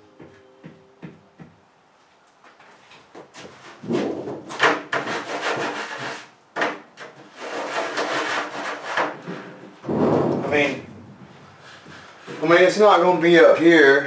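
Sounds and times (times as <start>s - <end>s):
harsh scraping on bus wall: 3.3s - 13.1s.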